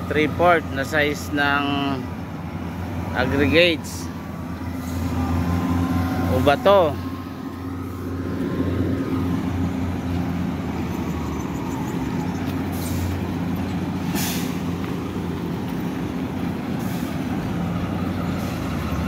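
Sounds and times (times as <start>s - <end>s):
heavy diesel engine running: 0.0s - 19.0s
short hisses: 14.0s - 14.7s.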